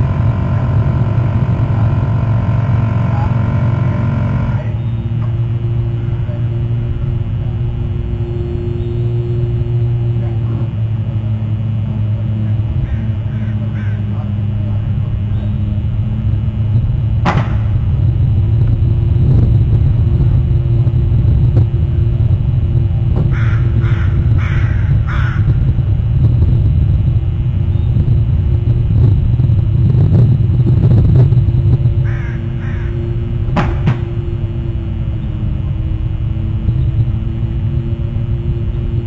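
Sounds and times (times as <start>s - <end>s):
steady low rumble: 0.0s - 39.0s
crow cawing: 12.8s - 14.2s, 23.3s - 25.6s, 32.0s - 33.1s.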